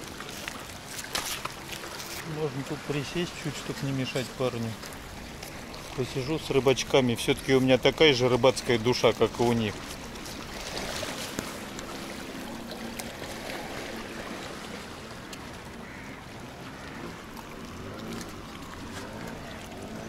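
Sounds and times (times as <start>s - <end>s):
waves lapping against rocks: 0.0s - 20.0s.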